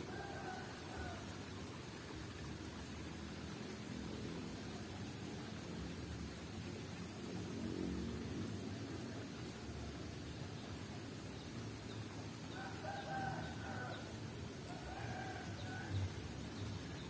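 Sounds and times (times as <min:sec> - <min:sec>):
rooster crowing: 0:00.0 - 0:01.4, 0:12.5 - 0:14.1, 0:14.7 - 0:16.0.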